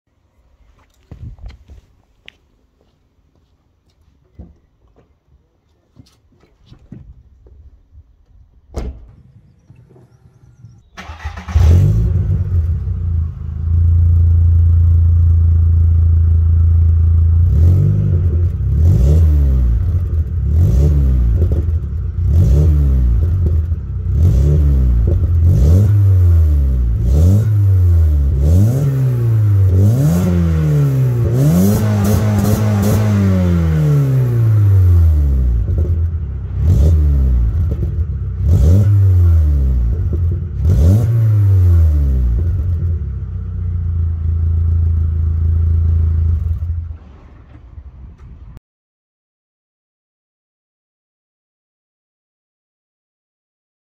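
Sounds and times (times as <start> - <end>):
car engine revving: 9.5 - 47.3.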